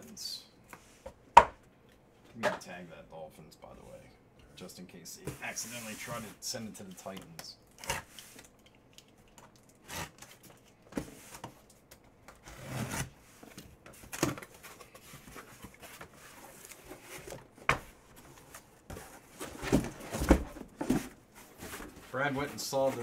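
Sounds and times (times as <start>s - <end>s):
cardboard rustling scrape: 5.3s - 6.4s, 12.4s - 17.4s, 18.2s - 23.0s.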